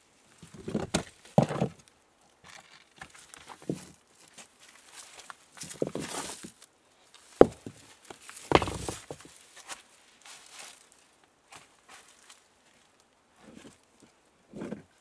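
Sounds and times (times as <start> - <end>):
stones and debris rustling: 0.3 - 12.4
stone rattle: 8.5 - 9.3.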